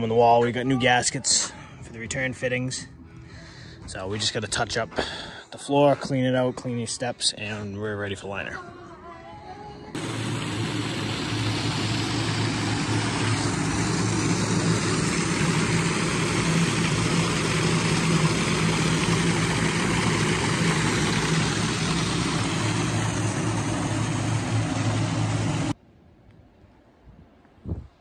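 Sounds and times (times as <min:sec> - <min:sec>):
shop vacuum running: 0:10.0 - 0:25.8.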